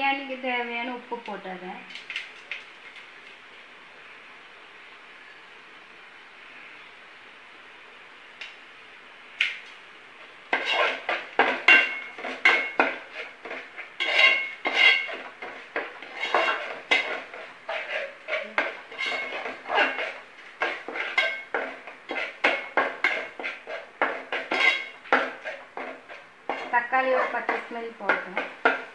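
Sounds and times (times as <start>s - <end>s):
steel spoon scraping metal pot: 10.6s - 13.3s, 14.0s - 15.3s, 16.0s - 28.9s.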